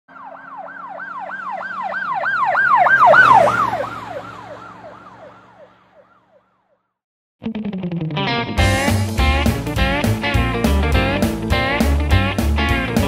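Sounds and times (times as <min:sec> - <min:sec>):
vehicle engine and road noise: 0:00.1 - 0:06.6
siren yelping: 0:00.1 - 0:06.8.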